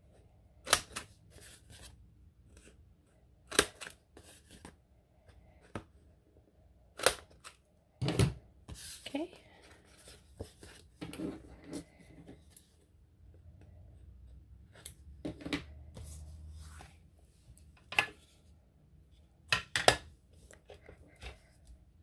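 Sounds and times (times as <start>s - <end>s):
paper cutter snipping paper: 0.6s - 1.0s.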